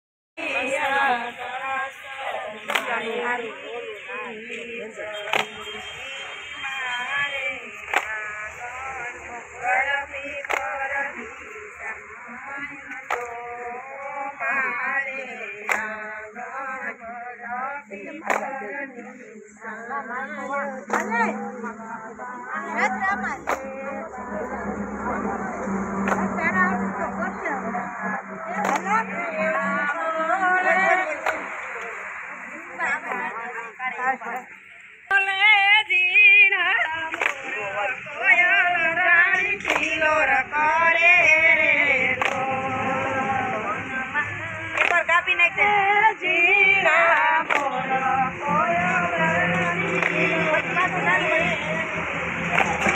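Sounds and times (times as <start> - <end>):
women singing folk song: 0.4 - 52.9
sharp hand claps: 2.6 - 3.1, 5.2 - 6.2, 7.8 - 8.2, 10.4 - 10.8, 12.9 - 13.4, 15.6 - 16.0, 18.2 - 18.6, 20.8 - 21.3, 23.3 - 23.8, 25.9 - 26.4, 28.5 - 29.2, 31.1 - 32.4, 37.1 - 37.6, 39.4 - 40.0, 42.1 - 42.5, 44.7 - 45.1, 47.1 - 47.9, 49.5 - 52.9.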